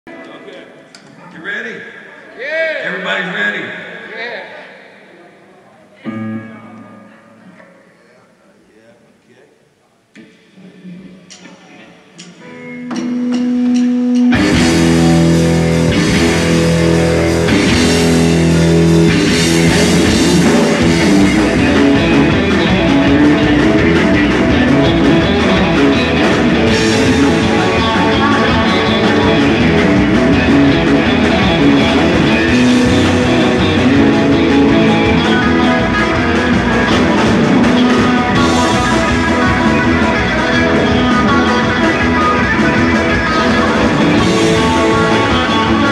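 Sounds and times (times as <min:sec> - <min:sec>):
electric guitars: 0:06.0 - 0:08.0, 0:10.6 - 0:45.9
drum kit: 0:12.2 - 0:45.9
bass guitar: 0:12.4 - 0:45.9.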